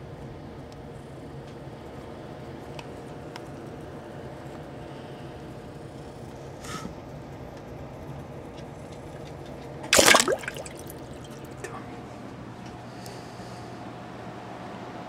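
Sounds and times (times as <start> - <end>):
turtle splashing in water: 9.9 - 11.7.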